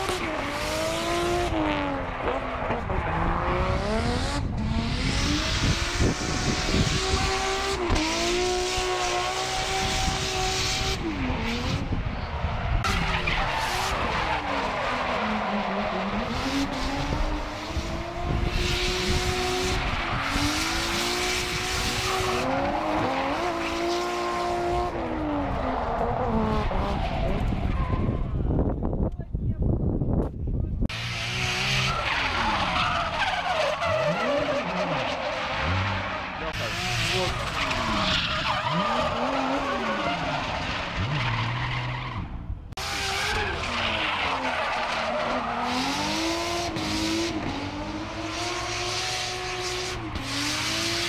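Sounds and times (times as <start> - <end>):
car engine revving hard: 0.0 - 11.9, 12.8 - 27.0, 30.9 - 41.7, 42.8 - 51.0
tyre squeal: 31.6 - 36.5.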